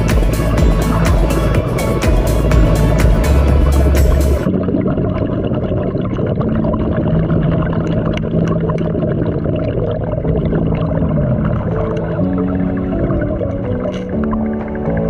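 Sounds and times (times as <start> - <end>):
steady low hum: 0.0 - 8.8
muffled underwater rumble: 0.0 - 15.0.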